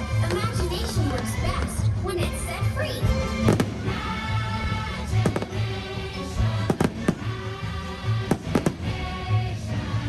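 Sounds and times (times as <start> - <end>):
music soundtrack: 0.0 - 10.0
fireworks bangs: 5.2 - 5.7, 6.6 - 7.4, 8.3 - 9.0.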